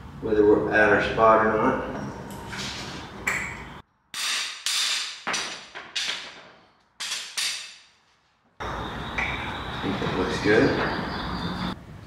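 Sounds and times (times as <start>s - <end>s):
hammer striking steel bar: 4.2s - 6.4s, 7.0s - 8.0s.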